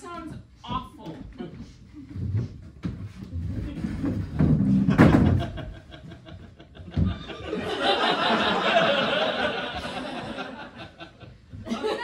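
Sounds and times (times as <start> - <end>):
audience laughing: 5.3 - 12.0.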